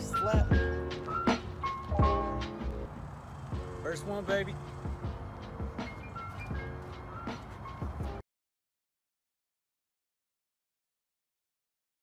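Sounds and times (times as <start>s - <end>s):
background music with held notes: 0.0s - 8.2s.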